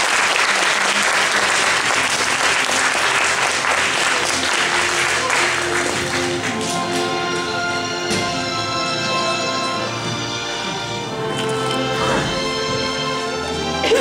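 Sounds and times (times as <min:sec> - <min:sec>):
audience applauding: 0:00.0 - 0:08.0
recorded music: 0:01.8 - 0:14.0.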